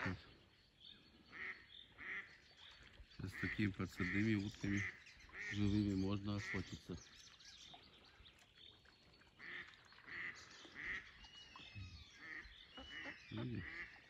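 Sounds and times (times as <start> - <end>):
duck quacking: 0.0 - 0.2, 1.3 - 2.3, 12.2 - 14.0.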